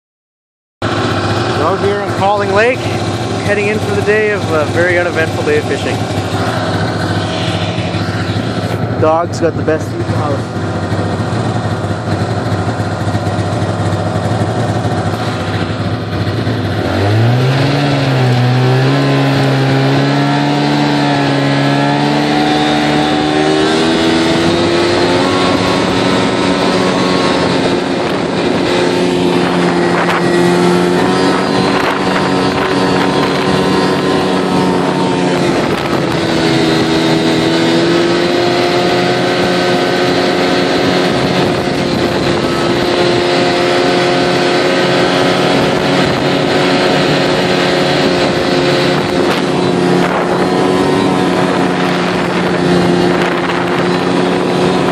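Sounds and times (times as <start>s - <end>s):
snowmobile engine: 0.8s - 54.9s.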